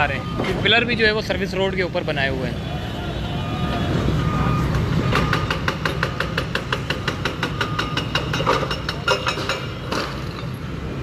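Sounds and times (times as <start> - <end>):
hydraulic breaker hammering concrete: 5.1 - 10.1.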